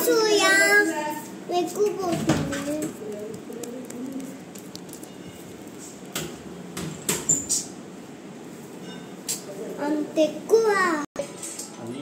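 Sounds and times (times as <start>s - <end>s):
hands tapping and handling: 2.1s - 7.3s.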